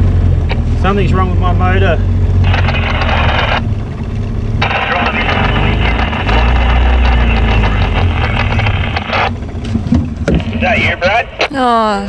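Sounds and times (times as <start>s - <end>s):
outboard motor droning: 0.0s - 11.4s
person speaking: 11.4s - 12.0s.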